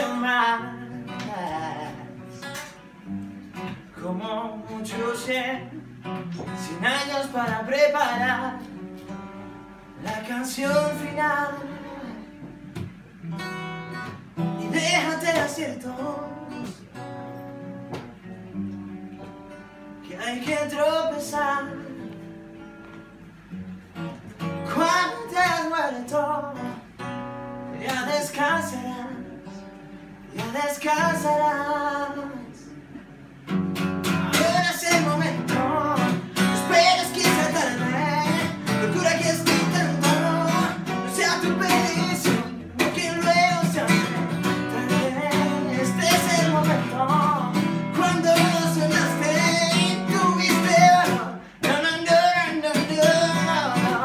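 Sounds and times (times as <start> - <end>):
man singing: 0.0 - 2.8, 3.9 - 8.8, 10.0 - 12.4, 14.4 - 16.8, 20.0 - 22.3, 24.6 - 27.0, 27.7 - 29.7, 30.3 - 32.9, 34.0 - 54.0
acoustic guitar strumming: 0.0 - 54.0.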